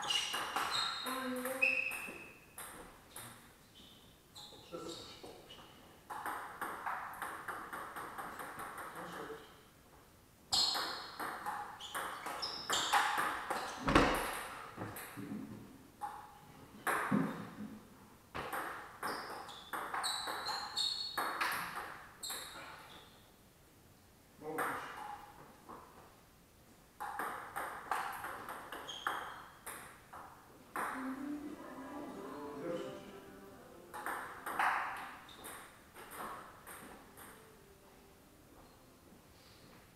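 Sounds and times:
table tennis ball rally: 0.0 - 3.4, 6.1 - 9.2, 10.5 - 15.4, 16.0 - 17.6, 18.4 - 22.6, 27.0 - 32.3, 32.9 - 37.4.

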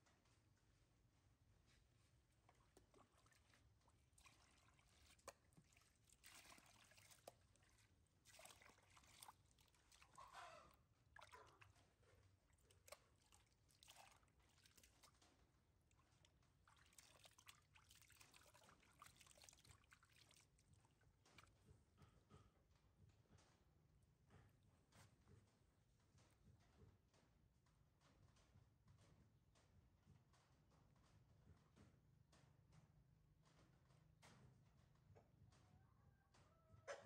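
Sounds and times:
water pouring and trickling: 2.5 - 21.4.

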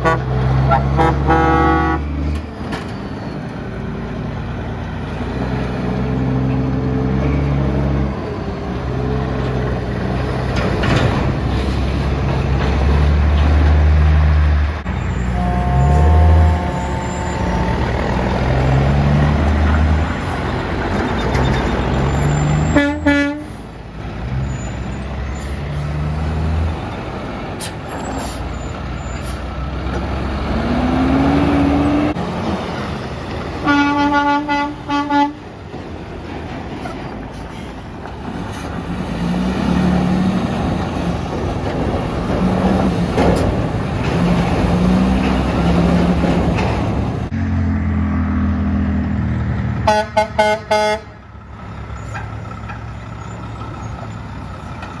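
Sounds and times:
truck horn toots: 0.0 - 2.2, 15.0 - 18.9, 22.4 - 23.6, 33.6 - 35.4, 49.8 - 51.2
heavy diesel trucks passing: 0.0 - 55.0.

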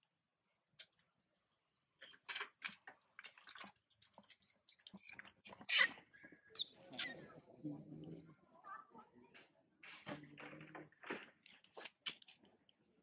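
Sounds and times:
macaques squealing and screeching: 4.4 - 7.3.

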